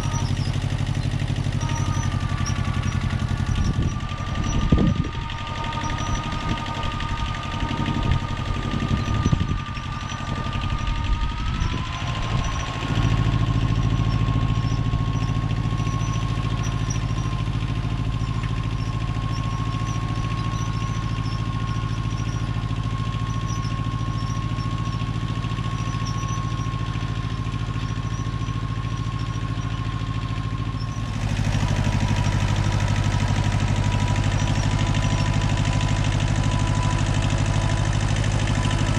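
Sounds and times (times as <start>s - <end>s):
steady whine: 0.0s - 24.5s
tractor engine running: 0.0s - 38.9s.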